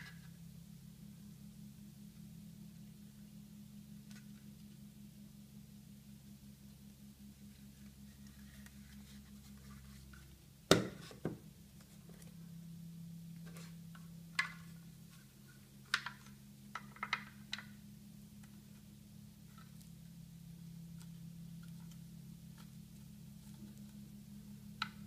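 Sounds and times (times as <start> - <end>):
faint low hum: 0.0 - 25.0
sharp knock of plastic: 10.7 - 11.4.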